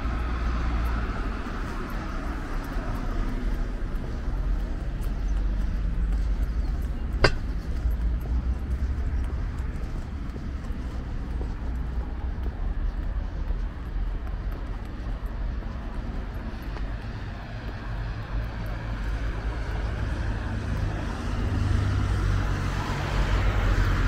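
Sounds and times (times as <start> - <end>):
traffic rumble: 0.0 - 24.0
sharp knock: 7.2 - 7.6.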